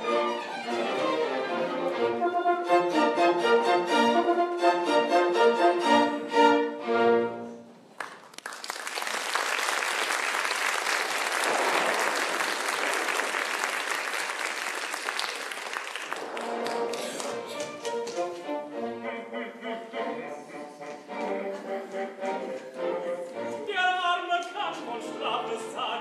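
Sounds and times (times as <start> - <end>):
orchestra playing: 0.0 - 7.9, 16.1 - 26.0
audience applauding: 8.0 - 18.4.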